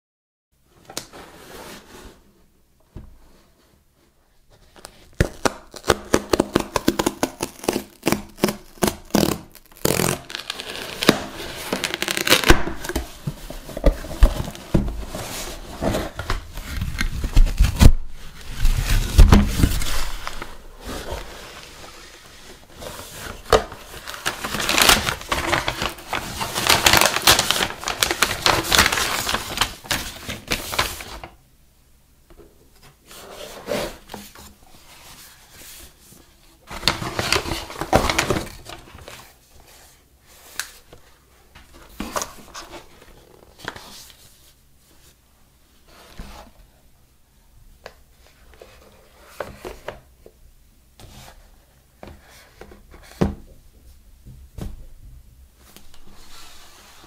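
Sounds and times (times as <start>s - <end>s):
paper and cardboard rustling: 3.2s - 31.3s, 32.8s - 45.2s.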